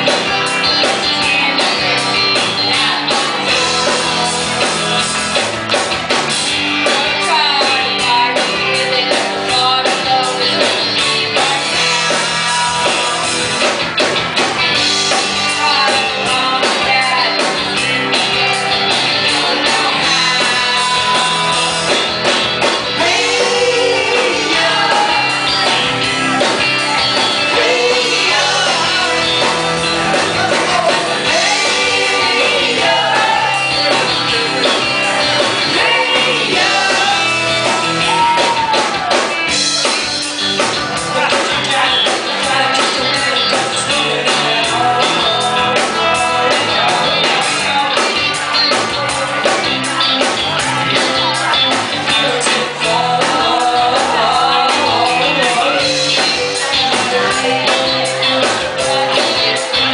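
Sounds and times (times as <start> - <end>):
drum kit playing: 0.0 - 59.9
electric guitars: 0.0 - 59.9
women singing together: 23.0 - 25.4, 31.3 - 34.0, 35.6 - 37.4.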